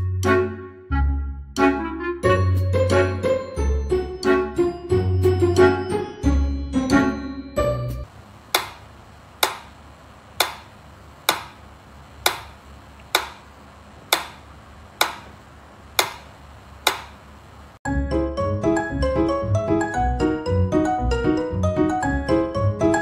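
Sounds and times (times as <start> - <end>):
music: 0.0 - 8.1, 17.9 - 23.0
metronome ticking: 14.0 - 17.1.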